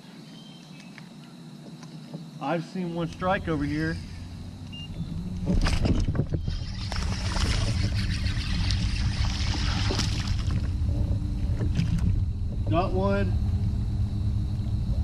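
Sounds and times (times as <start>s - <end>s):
low rumble: 3.0s - 15.0s
fishing reel cranking: 6.4s - 10.4s
fish splashing at the surface: 6.7s - 10.7s.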